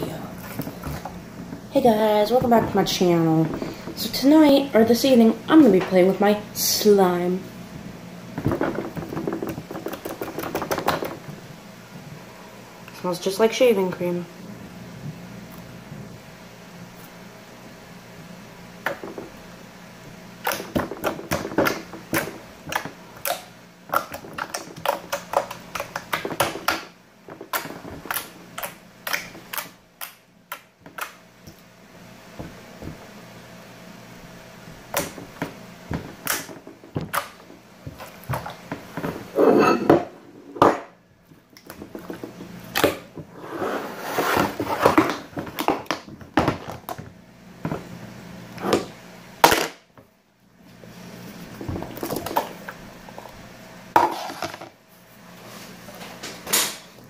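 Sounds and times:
plastic tub knocking and scraping: 0:08.4 - 0:11.4, 0:18.9 - 0:19.4.

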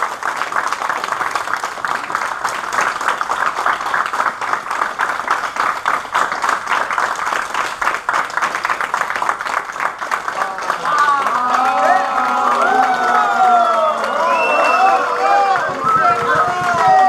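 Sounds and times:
people applauding: 0:00.0 - 0:17.0.

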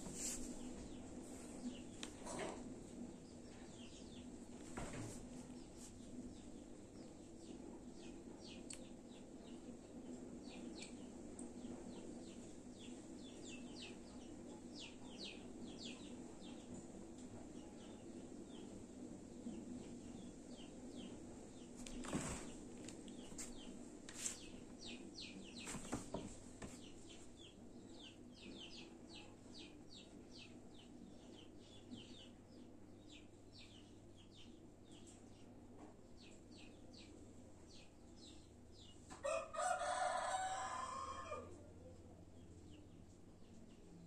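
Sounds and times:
small birds chirping: 0:00.0 - 0:40.8
rooster crowing: 0:39.2 - 0:41.6.

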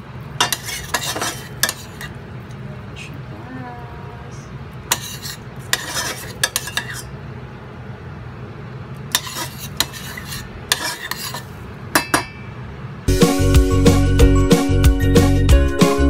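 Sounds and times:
metal spoon scraping pot: 0:00.4 - 0:02.2, 0:04.9 - 0:07.1, 0:09.1 - 0:12.4.

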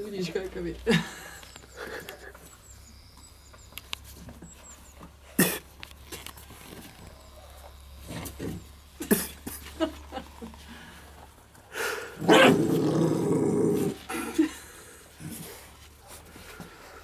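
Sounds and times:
puppies growling: 0:12.0 - 0:15.7.

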